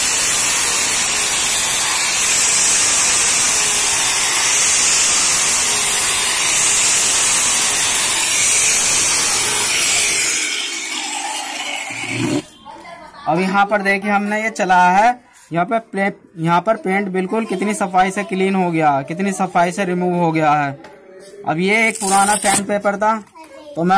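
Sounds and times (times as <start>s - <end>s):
angle grinder sanding wood: 0.0s - 12.5s, 21.8s - 22.7s.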